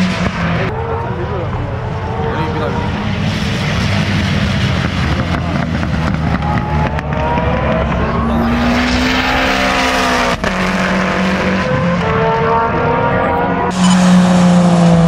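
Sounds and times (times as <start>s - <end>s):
race car engines running hard: 0.0s - 15.0s.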